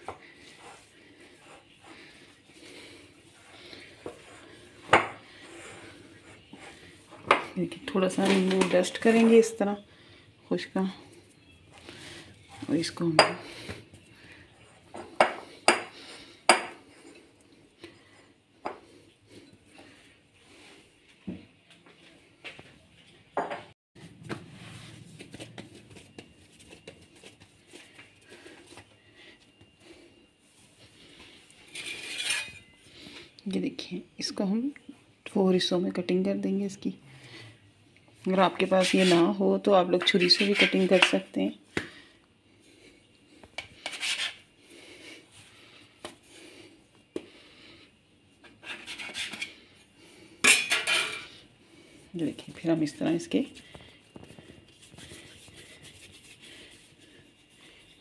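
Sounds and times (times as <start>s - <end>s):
hands kneading bread dough: 0.0s - 9.4s, 24.0s - 31.5s, 52.0s - 58.0s
scraper scraping on stone counter: 31.7s - 32.6s, 38.6s - 39.4s, 40.0s - 41.2s, 43.8s - 44.4s, 48.6s - 49.6s.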